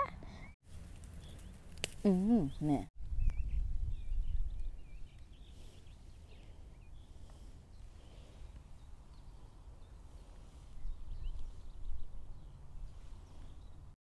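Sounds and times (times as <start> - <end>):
wind rumbling on microphone: 3.0 - 14.0.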